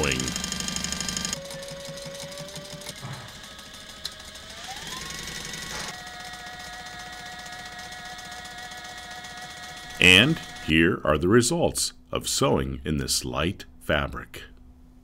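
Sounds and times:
sewing machine stitching: 0.0s - 10.6s.

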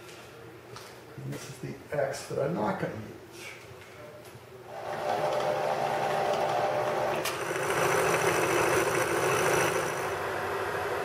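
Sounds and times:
milling machine whine: 4.7s - 11.0s.

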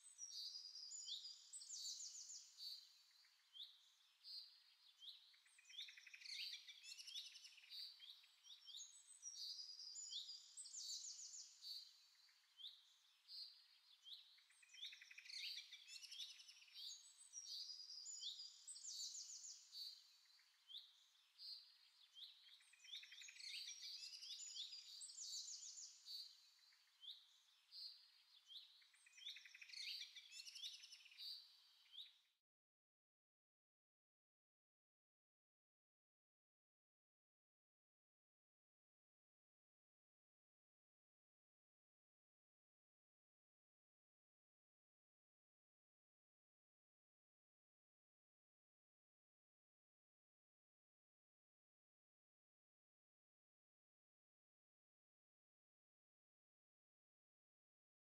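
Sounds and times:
faint birdsong chirps and trills: 0.0s - 32.5s.

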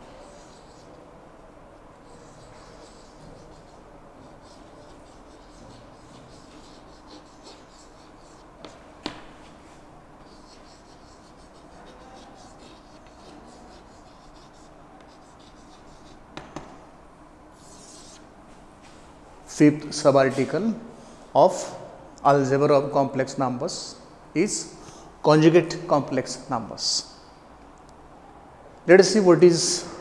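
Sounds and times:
chalk scratching on chalkboard: 0.0s - 1.0s, 2.0s - 16.3s, 17.6s - 18.2s
chalk tapping on board: 2.1s - 9.5s, 10.2s - 16.8s.

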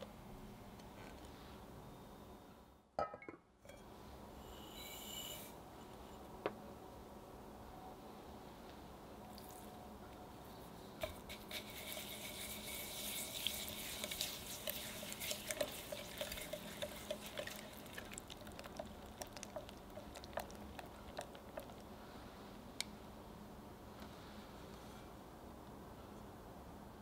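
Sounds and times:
whisk swishing in liquid: 11.0s - 21.8s
whisk tapping glass bowl: 11.0s - 21.8s.

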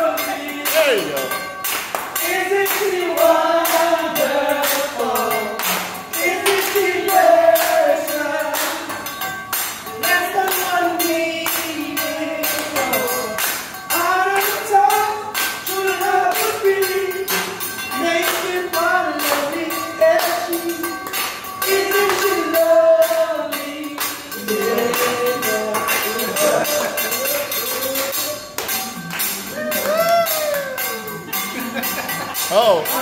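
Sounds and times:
man singing unaccompanied: 0.0s - 1.4s, 10.0s - 28.4s.

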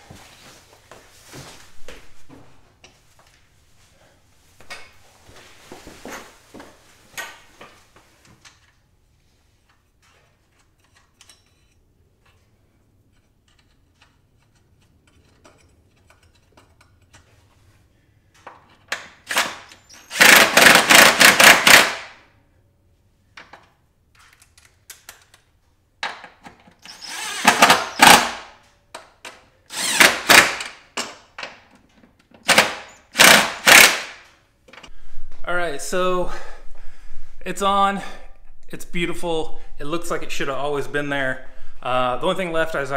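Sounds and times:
cordless power driver spinning nuts: 19.3s - 21.9s, 26.9s - 28.2s, 29.7s - 30.6s.

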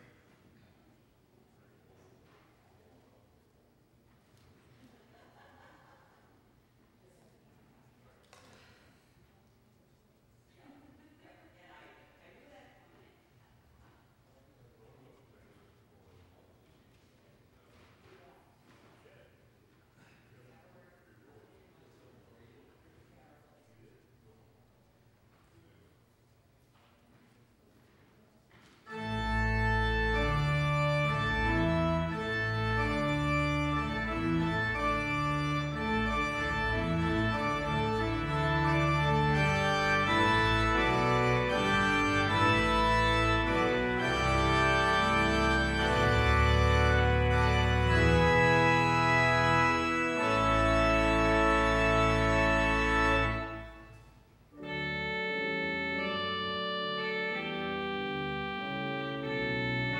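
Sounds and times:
organ playing chords: 28.9s - 59.9s.

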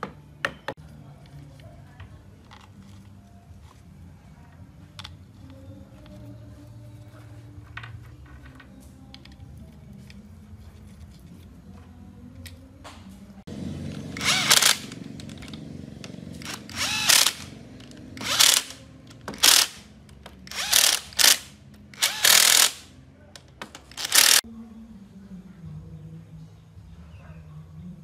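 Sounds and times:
cordless power driver running bolts: 13.9s - 24.4s.

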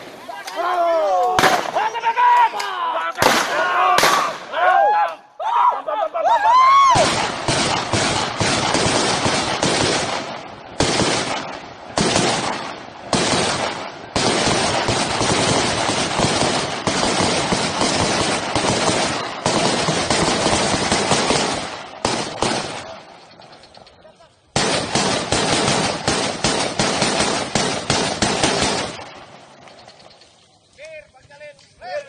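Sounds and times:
automatic gunfire: 7.0s - 23.0s, 24.5s - 29.4s.

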